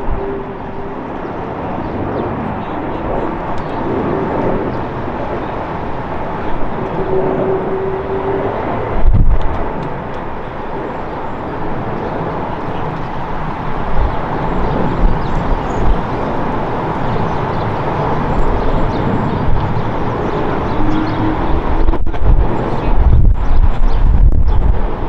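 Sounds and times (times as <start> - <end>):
jet engines rushing: 0.0 - 25.0
low rumbling: 13.9 - 25.0.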